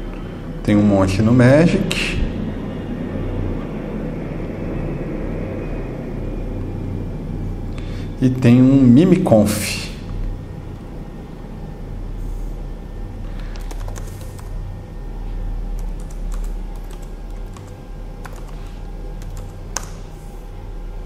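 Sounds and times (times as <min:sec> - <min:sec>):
steady low hum: 0:00.0 - 0:21.0
typing on a keyboard: 0:13.5 - 0:14.5, 0:15.8 - 0:18.6, 0:19.2 - 0:20.0.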